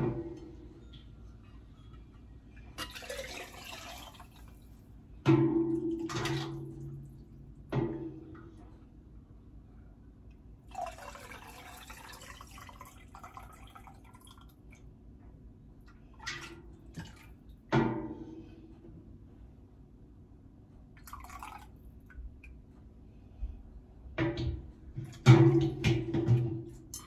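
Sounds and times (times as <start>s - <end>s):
ladle knocking on metal funnel: 5.2s - 7.0s, 24.2s - 27.0s.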